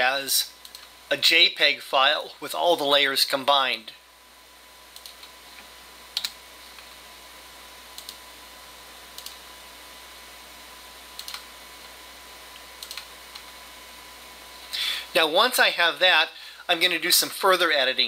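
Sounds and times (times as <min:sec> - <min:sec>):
faint steady hiss: 0:00.0 - 0:18.0
computer mouse and keyboard clicks: 0:06.2 - 0:06.9, 0:09.2 - 0:09.4, 0:11.2 - 0:11.5, 0:12.8 - 0:13.5.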